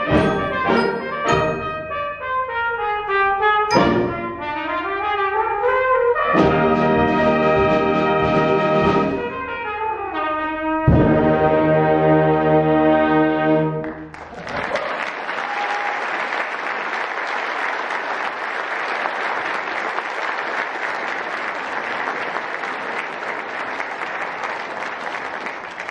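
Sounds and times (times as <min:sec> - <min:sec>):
audience applause: 0:13.8 - 0:25.9.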